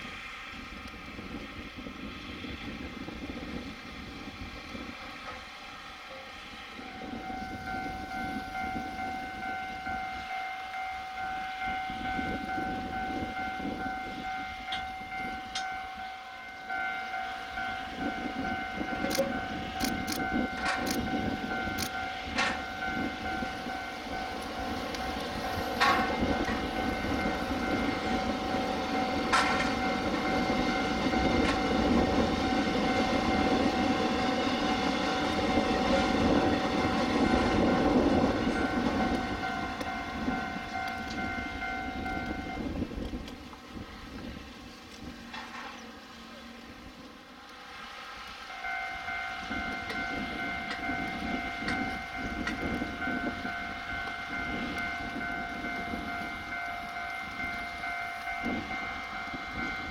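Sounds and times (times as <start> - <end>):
approaching train rumble: 0.0 - 59.9
level crossing warning signal: 6.0 - 43.2, 47.5 - 59.9.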